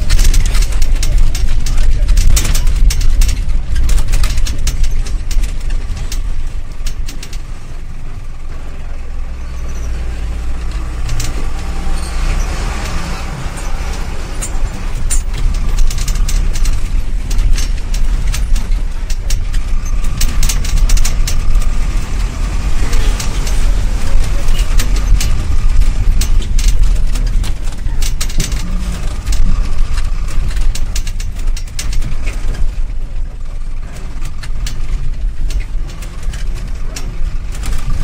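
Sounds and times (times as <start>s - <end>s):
bus body rattling: 0.0s - 38.0s
bus engine drone: 0.0s - 38.0s.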